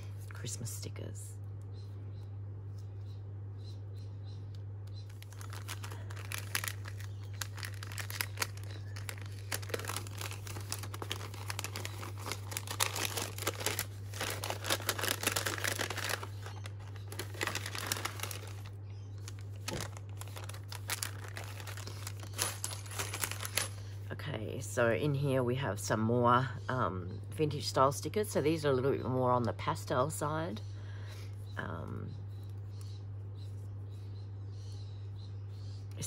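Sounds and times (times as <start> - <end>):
paper bags rustling: 5.1 - 23.8.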